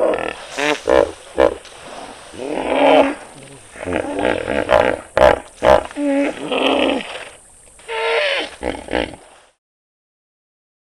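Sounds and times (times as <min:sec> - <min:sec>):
animal calls: 0:02.3 - 0:07.2, 0:07.8 - 0:09.2.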